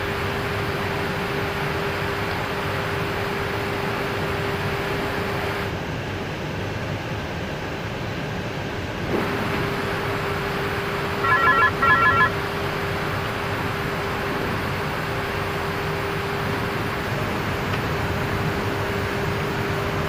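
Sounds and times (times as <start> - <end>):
electronic ringing tone: 11.2 - 12.4.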